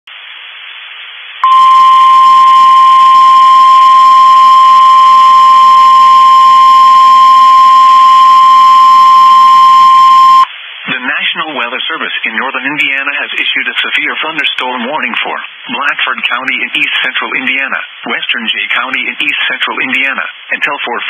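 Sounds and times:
faint radio hiss: 0.1s - 21.0s
loud steady alarm tone: 1.4s - 10.5s.

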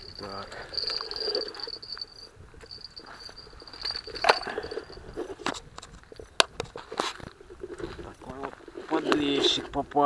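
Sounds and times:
high insect trill: 0.0s - 5.4s
footsteps on gravel: 6.0s - 9.7s.

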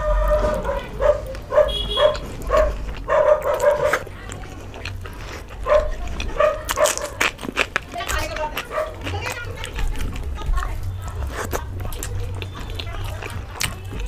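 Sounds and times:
dog yapping: 0.0s - 4.1s, 5.6s - 7.4s, 8.6s - 9.1s.

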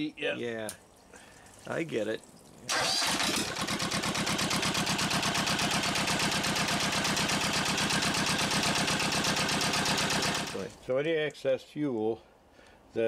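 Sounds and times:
diesel engine running: 2.7s - 10.7s.

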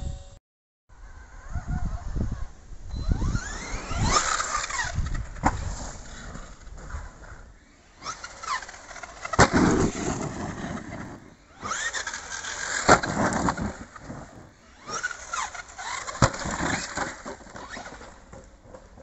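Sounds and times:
electric motor whining: 1.0s - 18.6s
toy truck landing hard: 8.0s - 18.4s.

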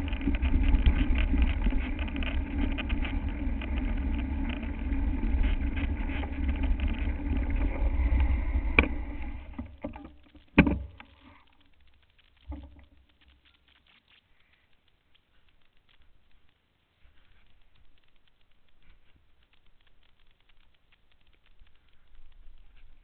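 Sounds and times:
bike tyres rumbling on dirt: 0.0s - 11.4s.

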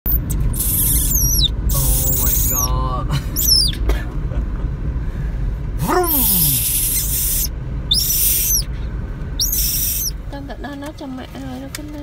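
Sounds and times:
low car rumble: 0.0s - 12.0s
baby monkey squeaking: 0.1s - 2.7s, 3.4s - 3.8s, 6.1s - 8.7s, 9.4s - 10.2s
monkey wavering calls: 0.6s - 2.7s, 3.4s - 3.8s, 6.0s - 8.7s, 9.4s - 10.2s.

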